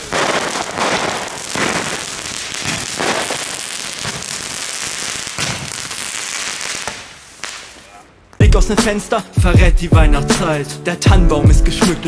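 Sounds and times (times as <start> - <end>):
firework pops and bursts: 0.0 - 8.4.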